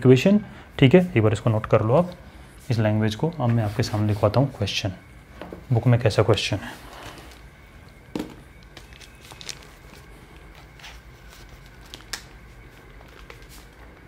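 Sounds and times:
paper rustling: 8.8 - 14.0.

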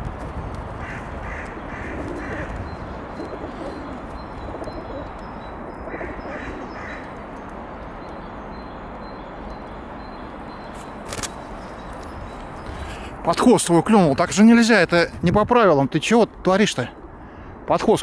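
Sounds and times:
low background noise: 0.0 - 18.0
pigeons cooing: 1.4 - 5.2, 5.9 - 7.1.

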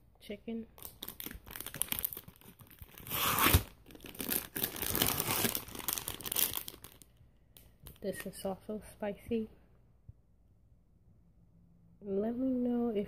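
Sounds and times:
plastic wrappers rustling: 0.8 - 7.2.

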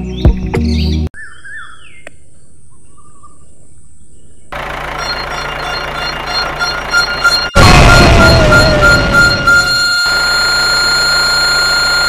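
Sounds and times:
birds chirping: 0.0 - 7.6.

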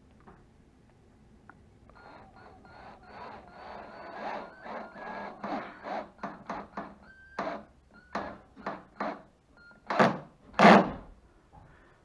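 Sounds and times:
cordless drill bursts: 2.0 - 9.2.

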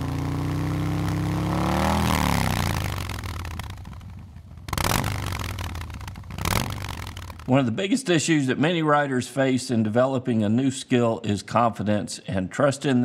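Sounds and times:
motorcycle engine revving: 0.0 - 7.8.

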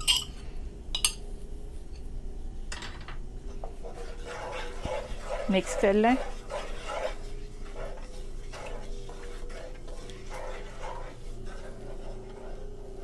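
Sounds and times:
light sizzle: 3.4 - 13.0
spatula scraping wok: 3.5 - 13.0.

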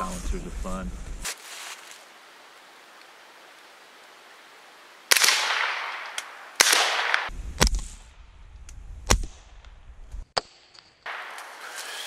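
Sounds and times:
suppressed rifle shots: 5.1 - 7.9.

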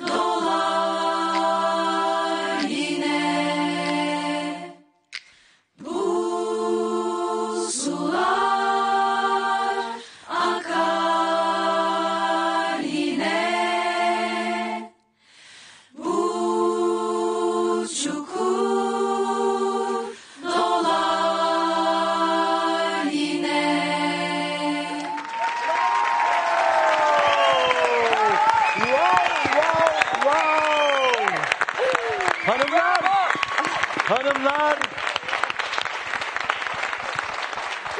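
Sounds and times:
women singing together: 0.0 - 4.8, 5.8 - 15.0, 16.0 - 25.2.

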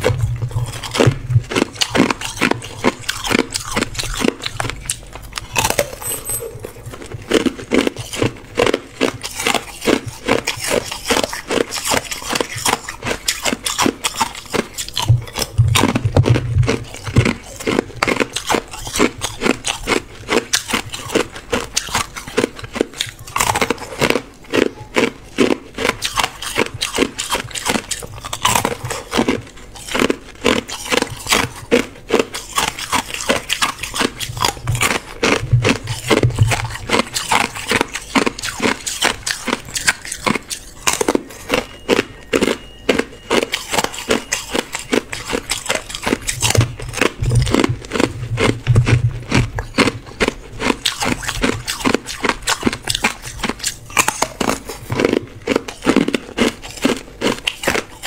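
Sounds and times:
ice cubes crunching when chewed: 0.0 - 58.0.

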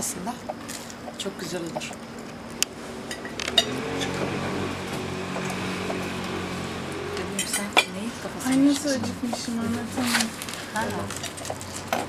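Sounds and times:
dishes and cutlery clinking: 7.3 - 9.5.

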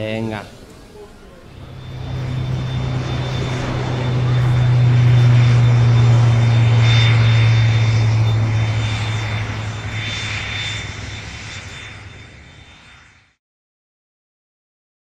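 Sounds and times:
low droning hum: 0.7 - 12.8
thin high whine: 0.8 - 13.3.

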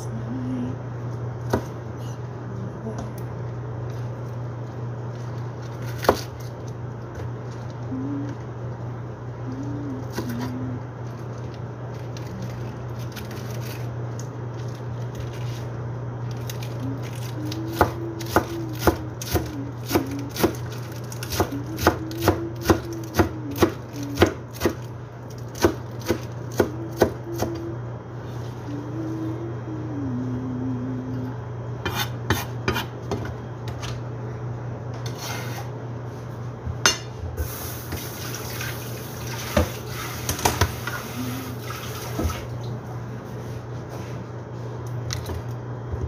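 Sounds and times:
steady low hum: 0.0 - 46.0
knife chopping on cutting board: 31.8 - 33.3.

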